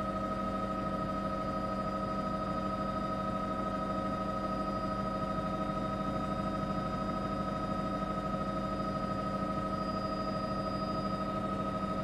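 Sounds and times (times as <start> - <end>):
helicopter engine and rotor drone: 0.0 - 12.0.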